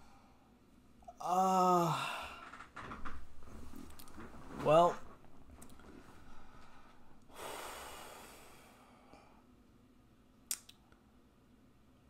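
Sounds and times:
man exhaling: 0:01.2 - 0:02.6, 0:06.4 - 0:09.2.

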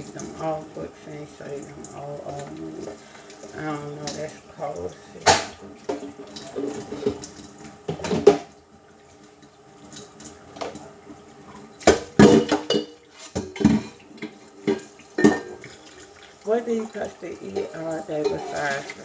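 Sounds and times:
water running from tap: 0:00.0 - 0:19.0
dishes clattering in a steel sink: 0:05.2 - 0:08.6, 0:11.5 - 0:19.0.

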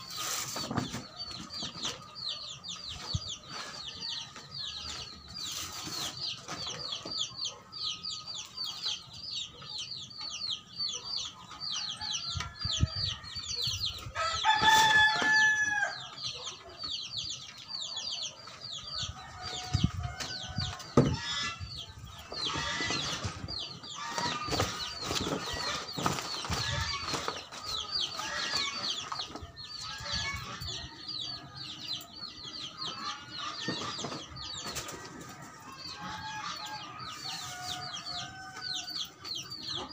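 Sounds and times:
rooster crowing: 0:14.2 - 0:16.1.

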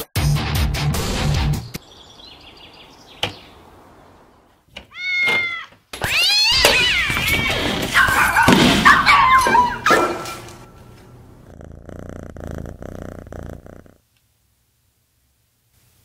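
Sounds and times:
cat meowing: 0:04.9 - 0:08.0.

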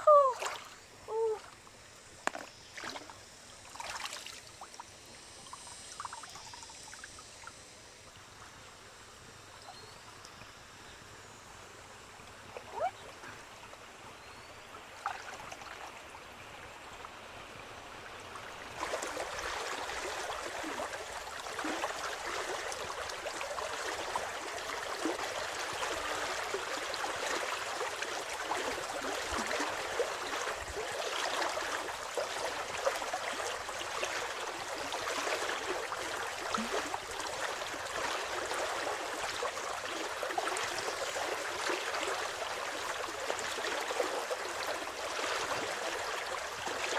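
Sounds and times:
person wading in water: 0:00.0 - 0:01.6, 0:02.3 - 0:05.0, 0:18.8 - 0:46.9
river water sloshing and trickling: 0:00.0 - 0:46.9.

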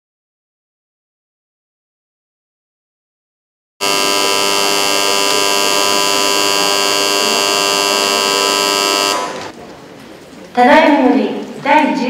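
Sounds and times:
electric buzzer: 0:03.8 - 0:09.5.

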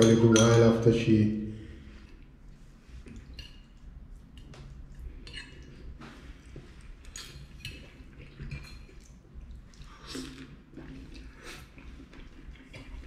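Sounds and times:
mouth sounds of eating: 0:03.0 - 0:13.0.

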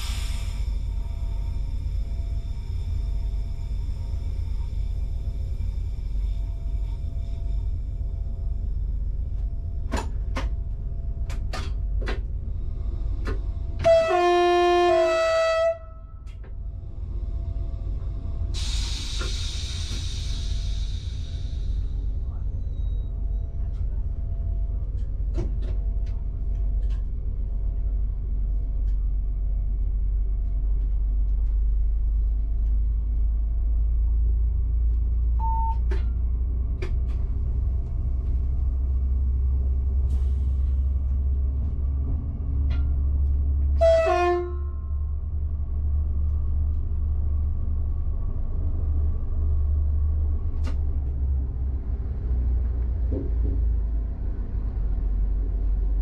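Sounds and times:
train low rumble and hum: 0:00.0 - 0:56.0
train horn blast: 0:13.8 - 0:16.3, 0:43.6 - 0:45.0.

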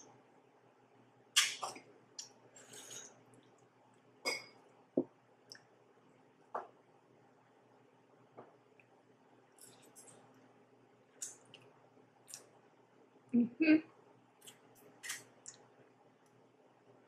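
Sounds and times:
soft eating noises: 0:01.4 - 0:06.8, 0:08.3 - 0:16.5.

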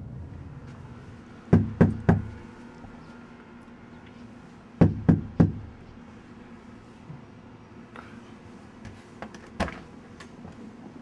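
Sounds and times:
knuckles knocking on door: 0:01.5 - 0:02.3, 0:04.8 - 0:05.7.

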